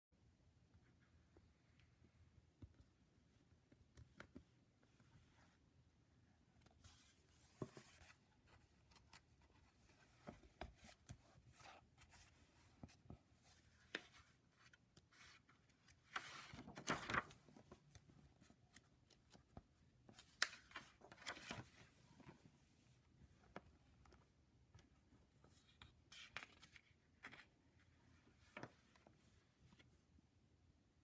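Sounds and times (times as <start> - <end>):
book pages turning: 6.6 - 22.5, 25.4 - 29.9.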